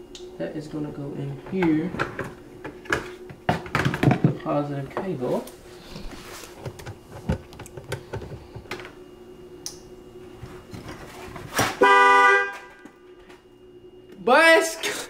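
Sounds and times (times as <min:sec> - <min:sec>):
car horn: 0:11.6 - 0:13.0.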